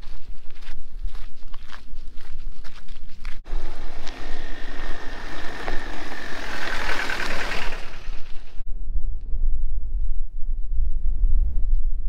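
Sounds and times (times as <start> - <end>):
vehicle passing by: 3.5 - 8.6.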